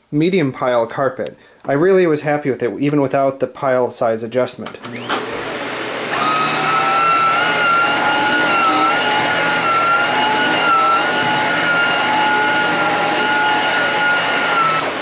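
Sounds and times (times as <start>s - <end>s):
vacuum cleaner running on carpet: 4.8s - 15.0s.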